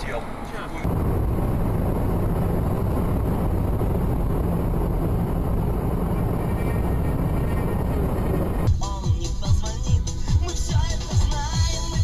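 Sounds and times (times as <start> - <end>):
engine and tyre drone: 0.0 - 8.7.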